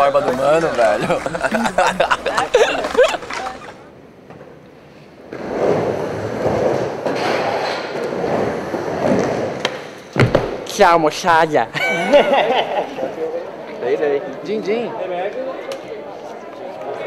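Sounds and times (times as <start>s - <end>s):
skateboard wheels rumbling on ramp: 5.3s - 10.6s.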